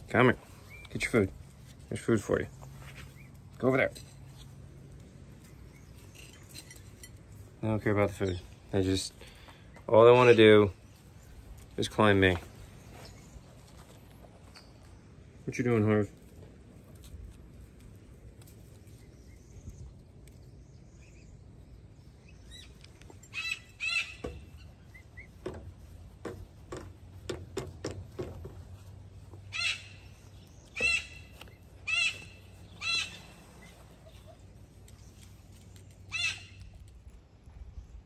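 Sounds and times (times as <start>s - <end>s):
prairie dogs barking: 2.5s - 6.6s, 7.3s - 11.7s, 18.7s - 37.0s.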